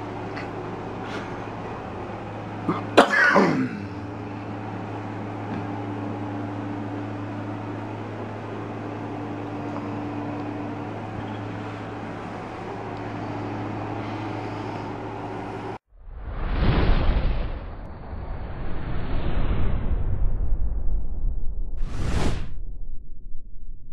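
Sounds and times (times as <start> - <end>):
steady low hum: 0.0 - 15.8.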